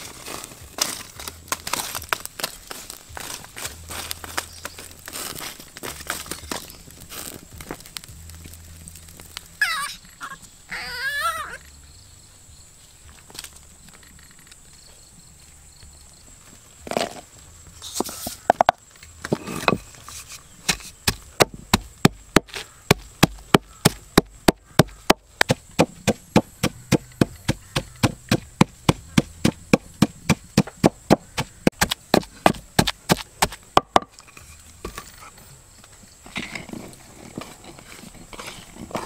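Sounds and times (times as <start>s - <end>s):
knife chopping on wooden board: 20.8s - 34.0s.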